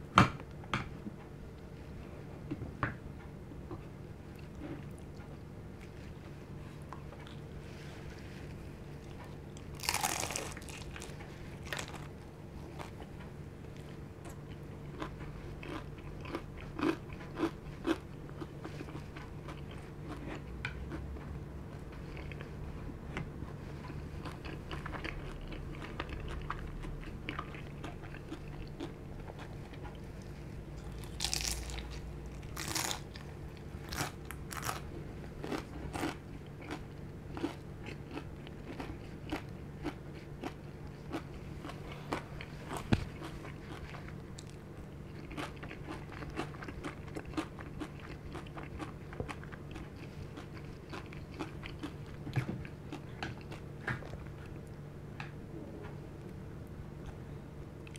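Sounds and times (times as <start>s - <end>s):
crunchy bites and chewing: 9.0s - 13.2s, 14.3s - 21.0s, 24.2s - 54.2s.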